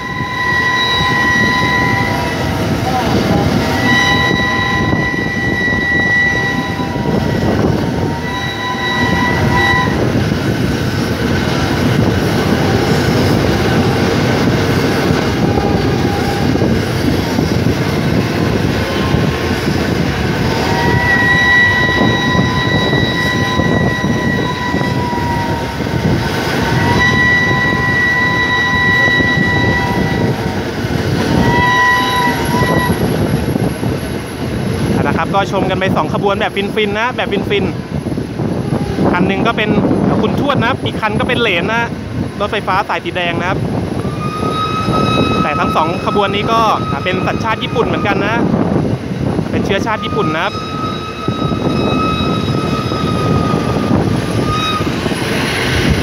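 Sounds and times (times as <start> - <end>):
train whistle blasts: 0.0 - 2.5, 3.7 - 10.1, 15.3 - 16.6, 20.5 - 25.8, 26.6 - 30.5, 31.3 - 33.1, 44.0 - 48.5, 49.7 - 55.0
train running on rails: 0.0 - 56.0.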